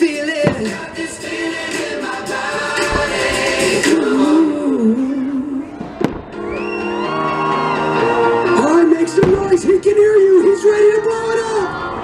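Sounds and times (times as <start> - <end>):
music with singer: 0.0 - 9.5
firework bang: 0.4 - 2.0, 2.8 - 4.0, 5.8 - 6.4, 9.2 - 9.8.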